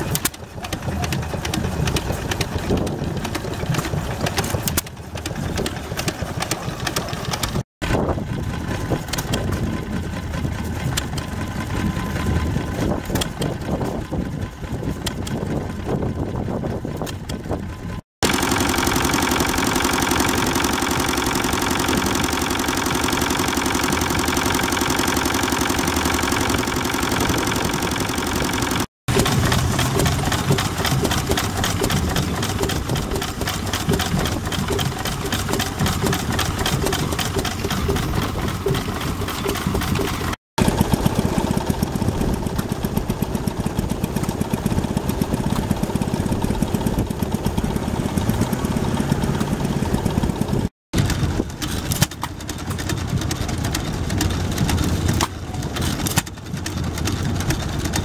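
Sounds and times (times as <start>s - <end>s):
small engine ticking beat: 0.0s - 7.6s, 8.2s - 51.3s, 51.9s - 58.0s
stationary engine with steady tone: 0.0s - 58.0s
single-cylinder engine firing: 18.2s - 58.0s.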